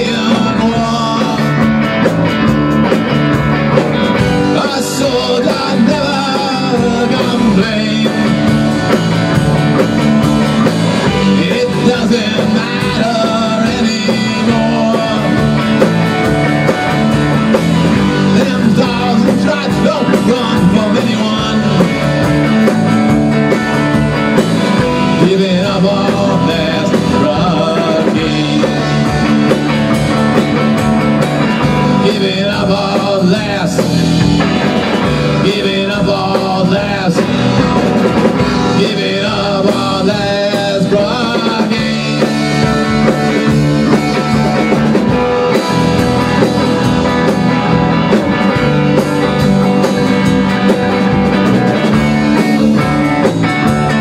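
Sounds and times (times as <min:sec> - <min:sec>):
bass guitar: 0:00.0 - 0:54.0
drum kit: 0:00.0 - 0:54.0
electric guitar: 0:00.0 - 0:54.0.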